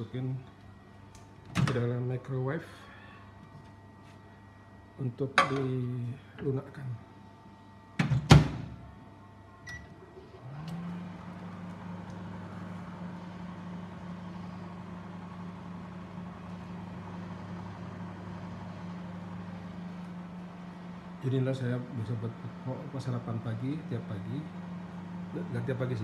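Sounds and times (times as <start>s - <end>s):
microwave oven humming: 0.0s - 26.0s
microwave door clunk: 8.0s - 8.8s.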